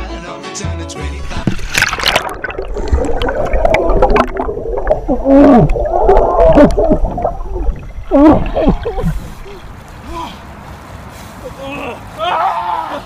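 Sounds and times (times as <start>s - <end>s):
muffled water splashing and gurgling: 1.2s - 9.8s.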